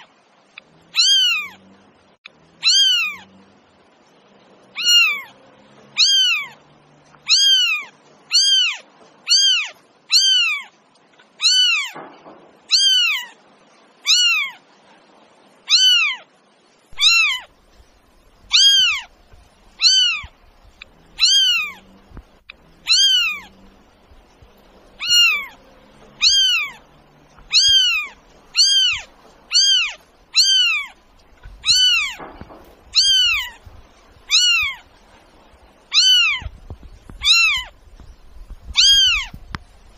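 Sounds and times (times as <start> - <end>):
cat meowing: 0.9 - 1.6, 2.6 - 3.3, 4.7 - 6.6, 7.2 - 10.7, 11.4 - 12.0, 12.7 - 13.4, 14.0 - 14.6, 15.6 - 16.3, 17.0 - 17.5, 18.5 - 19.1, 19.8 - 20.4, 21.1 - 23.8, 25.0 - 34.9, 35.9 - 37.8, 38.7 - 39.6.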